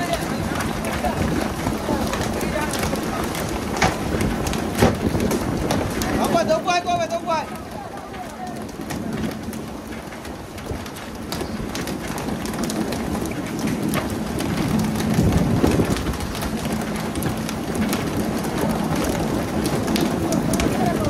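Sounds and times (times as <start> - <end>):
water pattering like heavy rain: 0.0 - 21.0.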